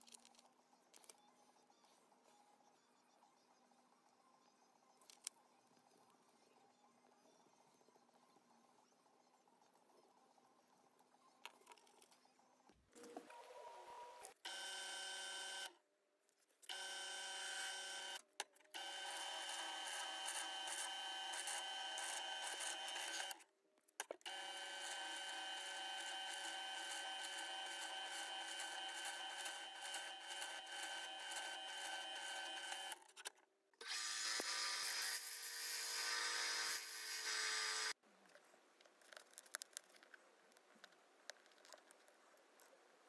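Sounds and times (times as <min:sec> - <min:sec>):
drill press whining: 0:24.3 - 0:33.0.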